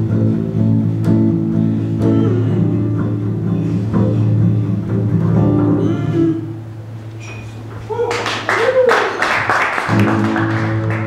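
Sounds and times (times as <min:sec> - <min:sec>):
acoustic guitar strumming: 0:00.0 - 0:07.7, 0:09.9 - 0:11.0
double bass notes: 0:00.0 - 0:08.0.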